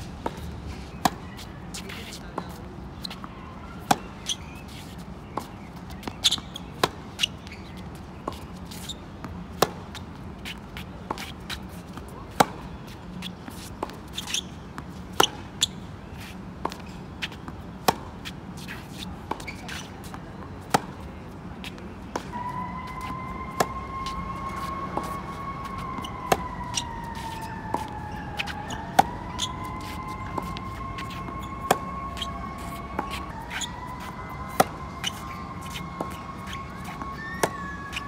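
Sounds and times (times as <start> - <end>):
tennis ball bouncing on hard court: 3.0 - 7.6, 15.1 - 15.7, 24.5 - 37.7
siren wailing: 22.3 - 38.0
tennis ball struck by racket: 24.5 - 37.6.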